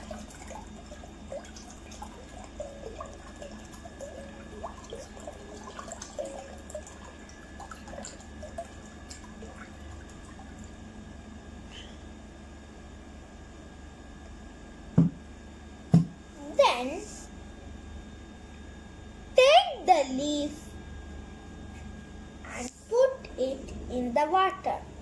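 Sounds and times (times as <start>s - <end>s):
water trickling into a bowl: 0.0s - 10.9s.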